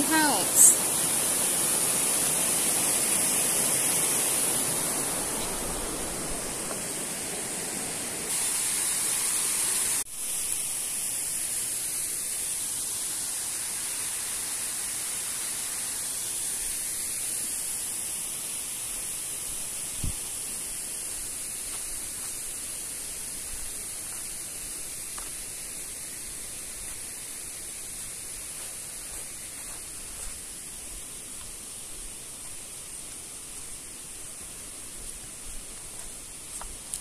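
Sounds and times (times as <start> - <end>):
waterfall rushing: 0.0 - 10.1.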